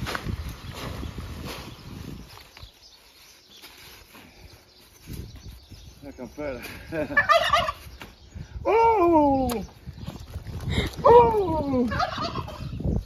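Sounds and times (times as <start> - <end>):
chickens and turkeys calling: 6.9 - 8.2, 11.8 - 13.0.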